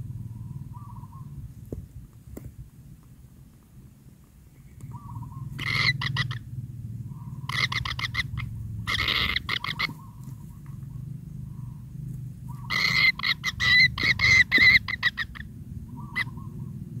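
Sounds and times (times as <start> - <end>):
low steady hum: 0.0 - 17.0
nestlings rasping calls: 0.4 - 1.4, 4.8 - 6.5, 7.1 - 11.8, 12.5 - 16.8.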